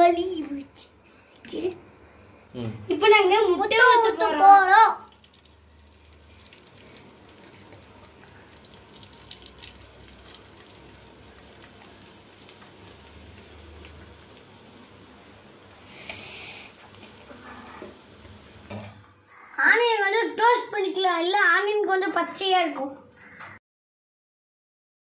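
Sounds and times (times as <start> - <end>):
egg sizzling on griddle: 3.8 - 18.7
egg hissing on griddle: 5.2 - 18.7.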